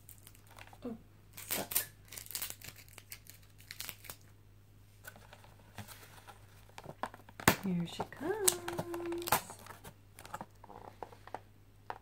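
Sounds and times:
faint low hum: 0.0 - 12.0
plastic tub crinkling and clicking: 5.1 - 12.0.

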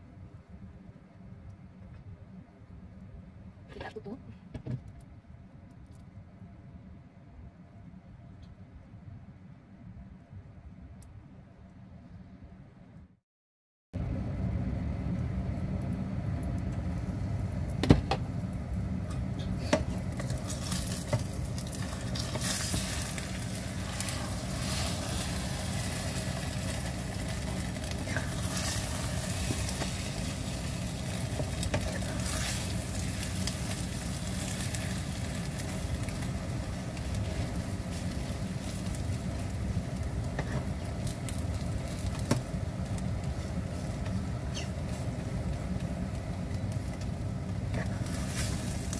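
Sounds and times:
low hum: 14.0 - 48.9
omelet sizzling in oil: 19.2 - 48.9.

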